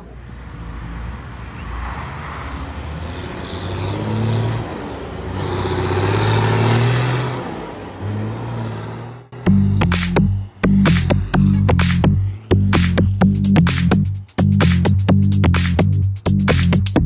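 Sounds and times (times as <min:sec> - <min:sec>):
cars passing: 0:00.0 - 0:15.8
truck diesel engine: 0:03.3 - 0:14.3.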